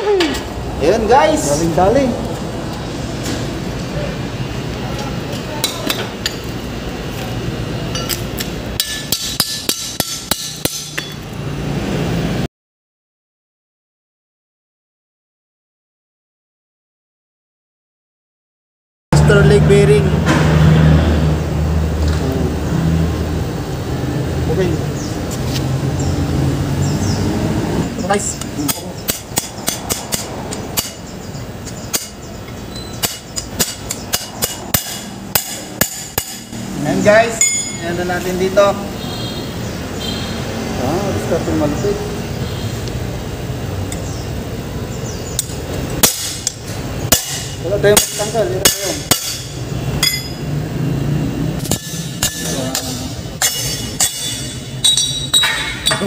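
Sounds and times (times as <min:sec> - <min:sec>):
hammer striking steel: 0:07.9 - 0:11.2, 0:28.6 - 0:31.1, 0:31.9 - 0:36.6, 0:37.3 - 0:38.0, 0:45.4 - 0:50.4, 0:51.6 - 0:56.0.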